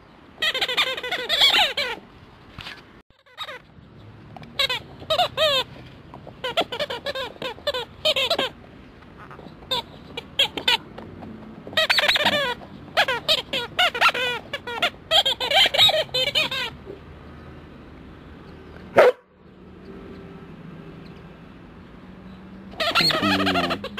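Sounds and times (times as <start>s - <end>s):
rubber squeaky toy squealing: 0.4s - 2.0s, 3.1s - 3.7s, 4.5s - 8.6s, 9.2s - 10.9s, 11.7s - 17.0s, 22.7s - 23.9s.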